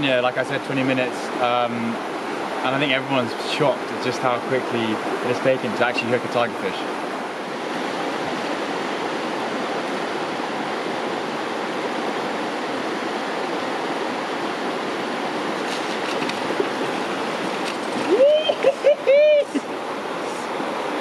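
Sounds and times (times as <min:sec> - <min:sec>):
river water rushing over riffle: 0:00.0 - 0:21.0.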